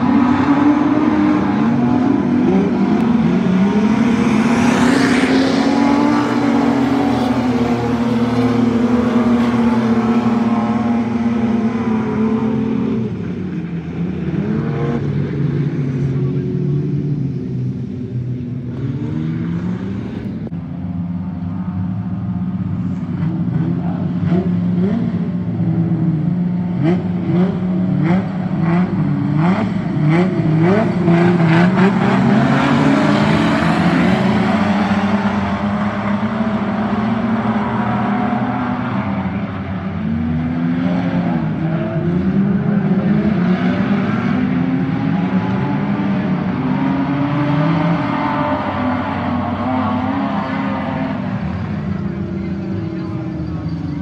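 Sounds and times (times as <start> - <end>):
race car engines revving: 0.0 - 54.0.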